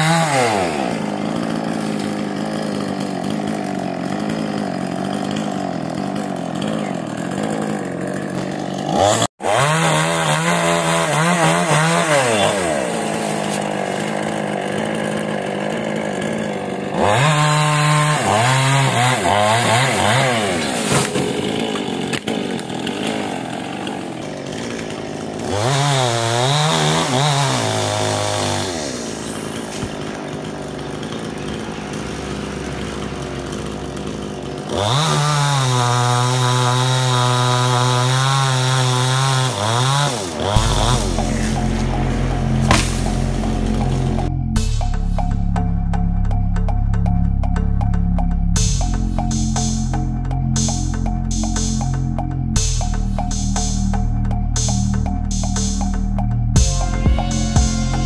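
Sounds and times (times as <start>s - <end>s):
chainsaw cutting tree: 0.0s - 46.0s, 56.6s - 58.0s.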